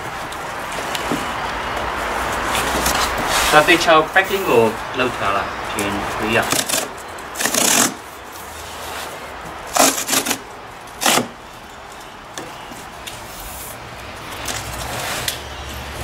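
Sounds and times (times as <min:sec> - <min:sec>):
cardboard box scraping: 0:02.1 - 0:03.8.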